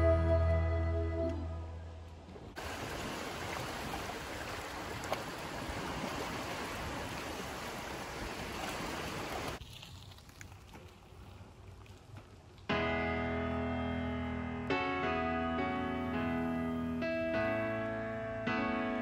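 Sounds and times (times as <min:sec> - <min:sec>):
small waves lapping on shore: 0:02.2 - 0:12.6.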